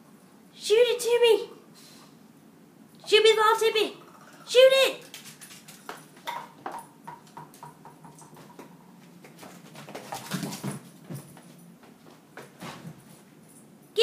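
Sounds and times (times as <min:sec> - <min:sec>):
ball tapping on floor: 0:05.9 - 0:09.4.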